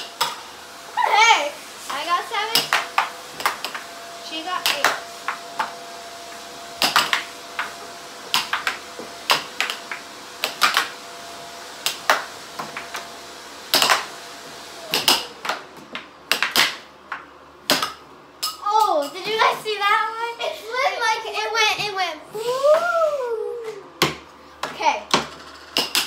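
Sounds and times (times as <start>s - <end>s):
air hockey puck clacking: 2.5s - 3.8s, 6.8s - 7.7s, 8.3s - 10.9s, 14.9s - 18.6s, 24.0s - 26.0s.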